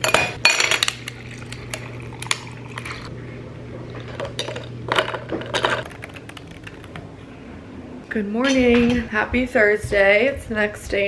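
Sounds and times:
liquid pouring into glass: 0:00.9 - 0:03.1.

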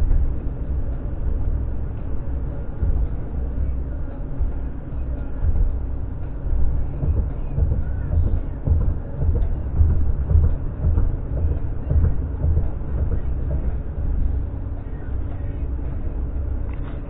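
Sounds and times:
tyres rumbling on road: 0:00.0 - 0:17.0.

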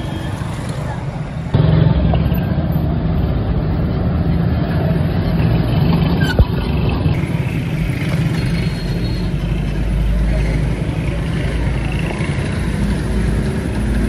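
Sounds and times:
street traffic: 0:00.0 - 0:14.0.

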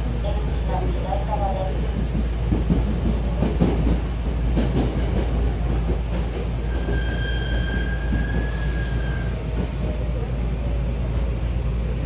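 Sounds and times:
train rumble from inside: 0:00.0 - 0:12.0
high squeal: 0:06.8 - 0:09.4.

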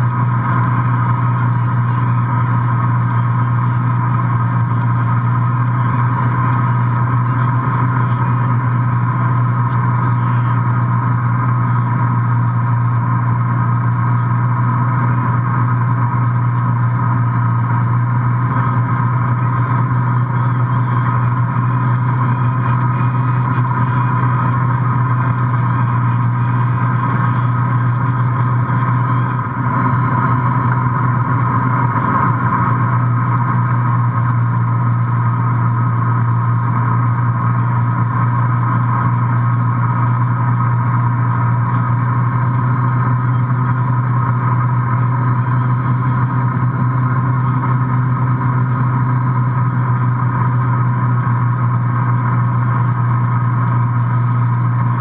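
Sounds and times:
boat engine droning: 0:00.0 - 0:55.0.

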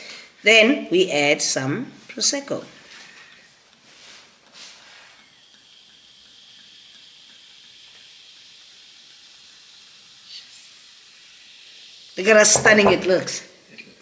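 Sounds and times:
fizzing hiss: 0:01.9 - 0:14.0
sparkling wine pouring over ice: 0:04.7 - 0:13.4.

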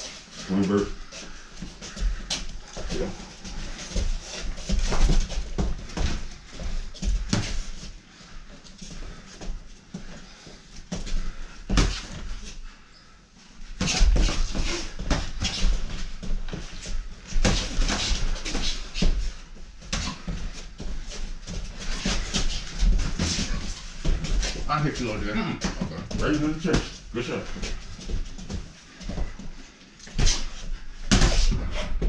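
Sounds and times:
boxing gloves thudding and slapping: 0:13.7 - 0:19.2, 0:30.0 - 0:32.0.

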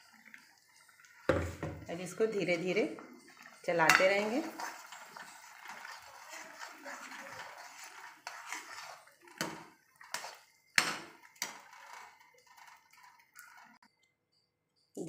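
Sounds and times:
metal spatula scraping a pan: 0:00.0 - 0:13.8
soft sizzle: 0:00.0 - 0:14.0.

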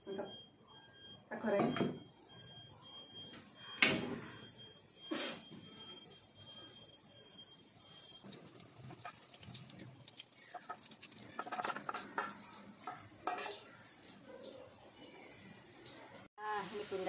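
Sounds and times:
batter frying in hot oil: 0:04.3 - 0:16.3
spoon clinking on steel bowl: 0:11.4 - 0:14.0.

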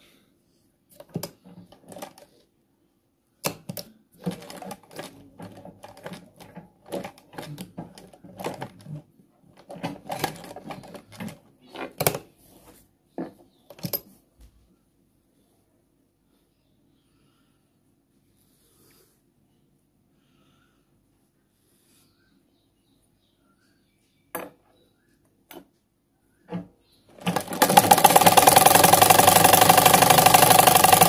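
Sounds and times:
sewing machine clattering: 0:01.0 - 0:02.3, 0:03.7 - 0:12.1, 0:26.6 - 0:31.0.

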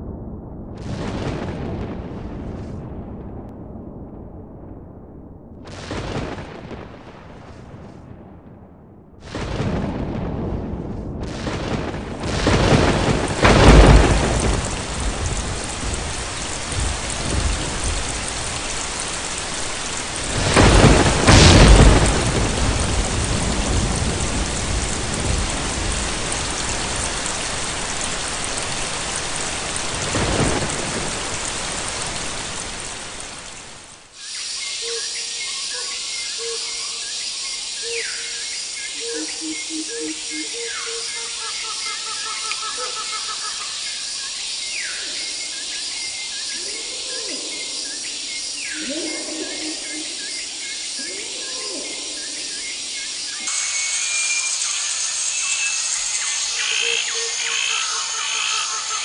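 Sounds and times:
thunder rumbling: 0:00.0 - 0:33.9
heavy rain pouring: 0:05.7 - 0:08.2, 0:09.2 - 0:59.0
falling whistles: 0:53.3 - 0:57.5.

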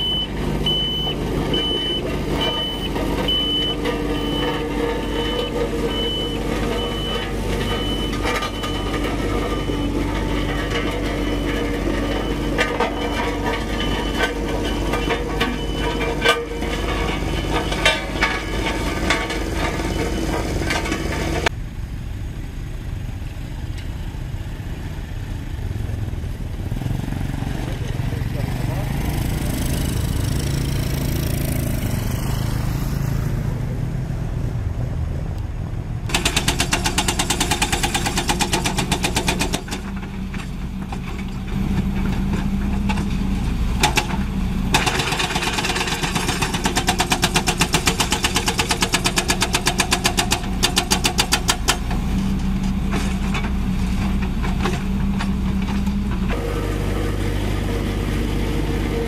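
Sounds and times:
roller engine running: 0:00.0 - 0:24.4, 0:36.0 - 0:59.0
diesel engine running: 0:00.0 - 0:59.0
hydraulic breaker hammering rock: 0:36.1 - 0:40.0, 0:43.8 - 0:52.0.

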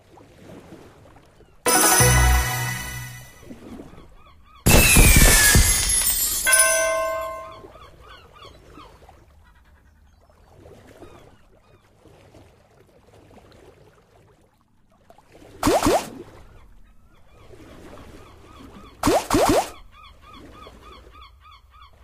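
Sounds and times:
game background sounds: 0:01.7 - 0:03.5
short held chord: 0:01.7 - 0:03.5
burst with falling whistle: 0:04.7 - 0:06.0.

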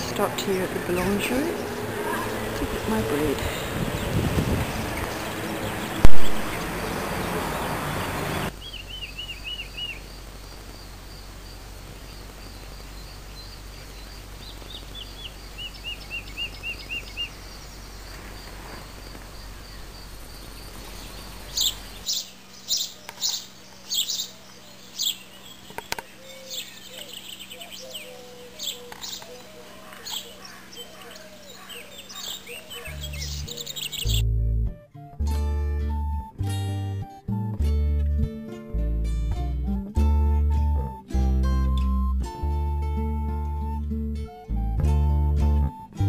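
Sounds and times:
steady background noise: 0:00.0 - 0:34.1
birds chirping: 0:00.0 - 0:34.2
high sharp bird calls: 0:01.0 - 0:10.2, 0:19.4 - 0:34.2.

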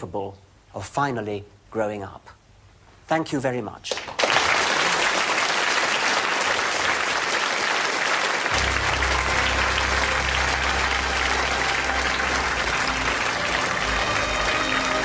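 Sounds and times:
audience applauding: 0:03.9 - 0:15.0
low sustained music notes: 0:08.6 - 0:15.0.

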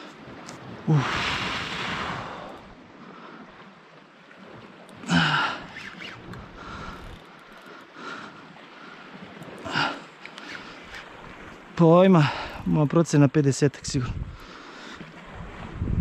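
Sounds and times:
man gasping: 0:05.1 - 0:05.6
man breathing hard: 0:06.6 - 0:07.2.

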